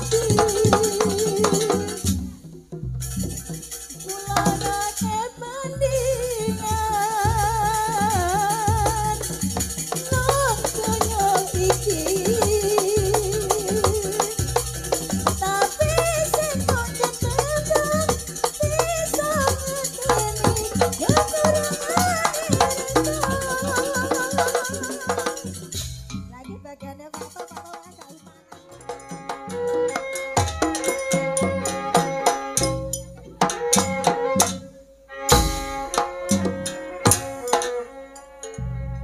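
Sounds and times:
rattling percussion: 0.0s - 39.0s
low drum strokes: 35.3s - 37.9s.

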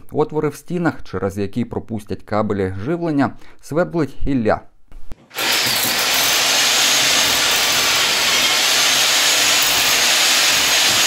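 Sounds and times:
electric drill boring through wall: 5.2s - 11.0s.

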